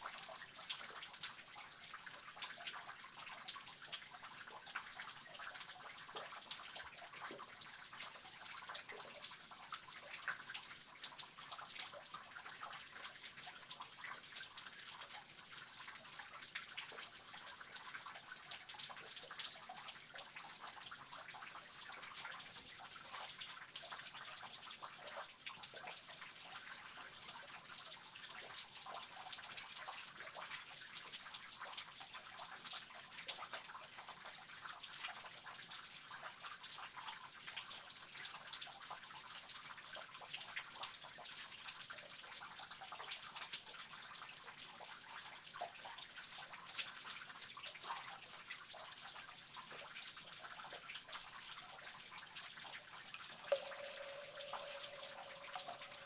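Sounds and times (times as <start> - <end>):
trickle of running water: 0.0 - 56.0
water drops falling: 53.5 - 56.0.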